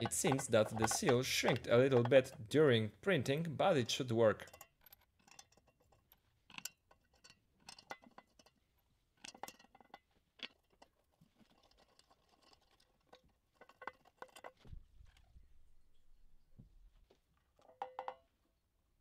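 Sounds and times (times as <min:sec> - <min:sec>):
wing nuts clicking on bolts: 0:00.0 - 0:08.6.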